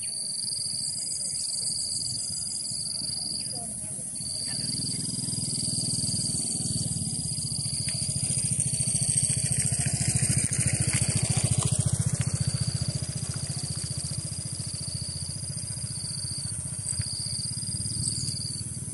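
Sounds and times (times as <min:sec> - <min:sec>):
engine running: 0:00.1 - 0:18.9.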